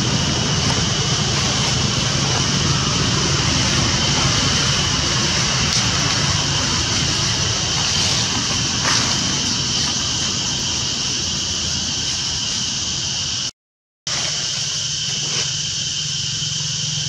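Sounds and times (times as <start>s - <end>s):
low rumble: 0.0s - 13.4s
high hiss: 0.0s - 13.5s, 14.1s - 17.0s.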